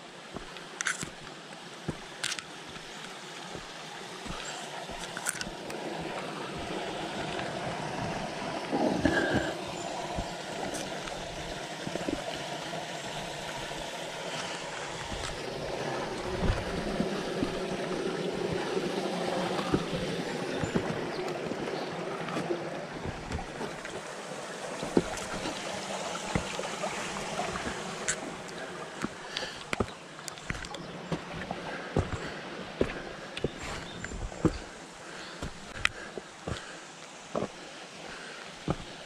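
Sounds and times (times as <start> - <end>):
creek trickling over rocks: 0.0 - 39.0
footsteps on dirt and rock: 0.3 - 12.4, 13.1 - 24.1, 24.7 - 39.0
rocks scraping and knocking: 0.4 - 8.2, 14.3 - 24.1, 24.8 - 36.7.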